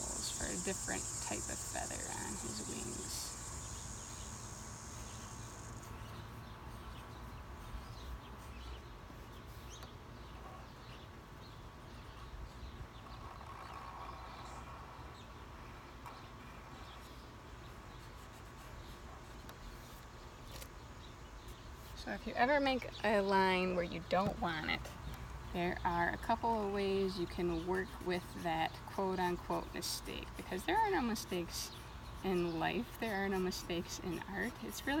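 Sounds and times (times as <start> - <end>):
high insect trill: 0.0 - 6.5
faint chirps: 0.0 - 7.0.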